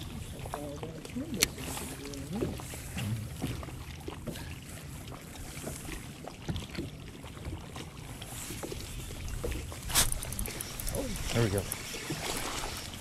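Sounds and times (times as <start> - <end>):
waves lapping against boat hull: 0.0 - 13.0
faint small clicks: 9.9 - 13.0.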